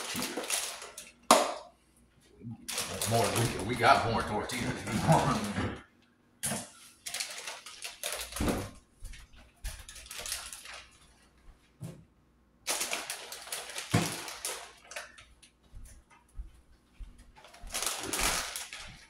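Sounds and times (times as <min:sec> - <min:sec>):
footsteps: 0:08.4 - 0:10.1, 0:15.2 - 0:19.0.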